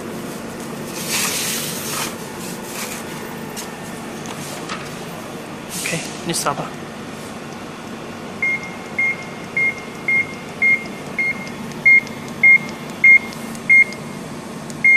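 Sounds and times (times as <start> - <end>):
steady low hum: 0.0 - 14.9
barcode scanner beeping: 8.4 - 14.1.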